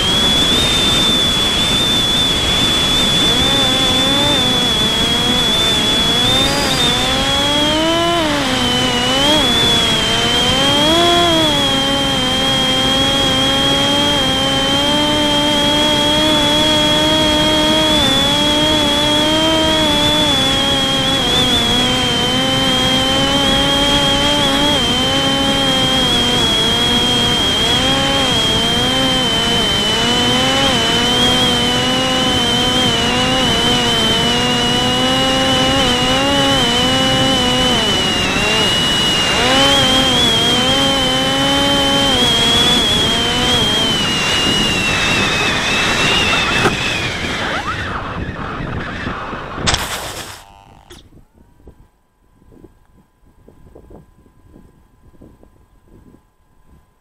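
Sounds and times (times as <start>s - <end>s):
drone motor and propeller whine: 0.0s - 57.0s.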